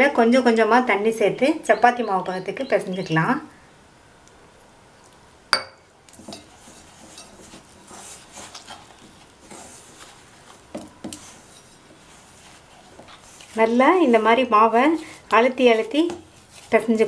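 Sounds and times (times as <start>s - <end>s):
hands rubbing flour in steel bowl: 6.2s - 17.0s.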